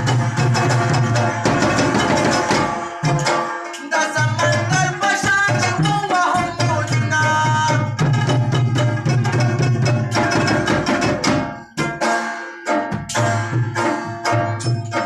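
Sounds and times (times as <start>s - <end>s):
sustained folk melody: 0.0s - 15.0s.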